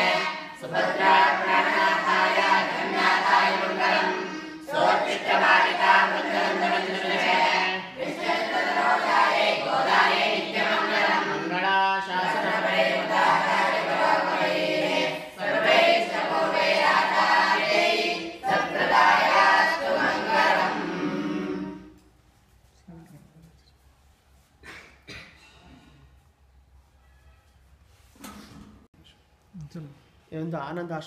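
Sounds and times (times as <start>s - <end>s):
boys singing a hymn in unison: 0.0s - 22.0s.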